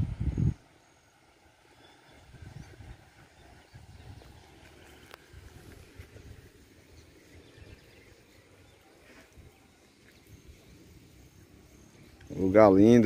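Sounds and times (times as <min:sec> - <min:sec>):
tiny faint distant sounds: 0:00.0 - 0:13.0.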